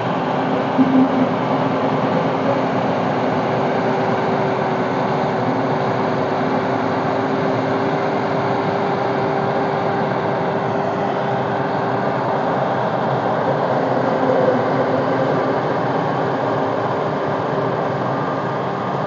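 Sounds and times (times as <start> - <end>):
combine harvester droning: 0.0 - 19.0.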